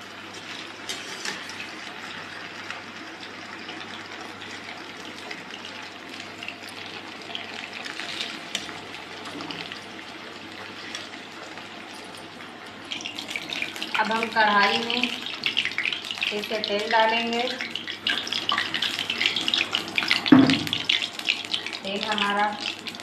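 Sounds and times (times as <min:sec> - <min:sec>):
hot oil sizzling: 0:00.0 - 0:23.0
metal spoon scraping a pan: 0:00.3 - 0:01.7.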